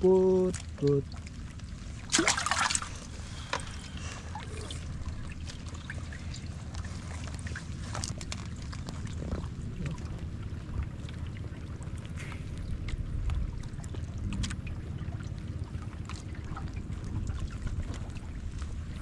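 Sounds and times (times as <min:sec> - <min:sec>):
low steady rumble: 0:00.0 - 0:19.0
water trickling and dripping: 0:00.0 - 0:19.0
water splash: 0:00.6 - 0:10.2.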